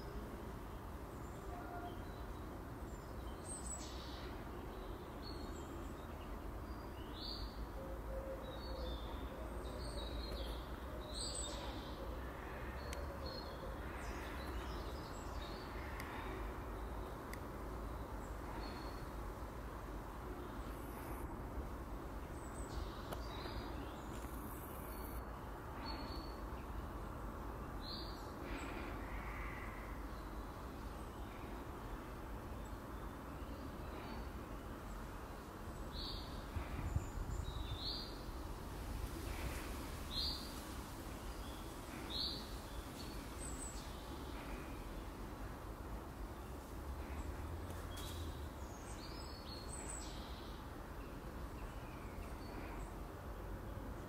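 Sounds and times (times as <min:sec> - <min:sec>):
low outdoor hum: 0:00.0 - 0:54.0.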